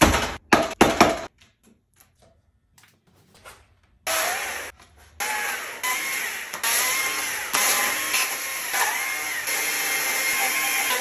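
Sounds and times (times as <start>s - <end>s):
chainsaw cutting wood: 4.1s - 11.0s.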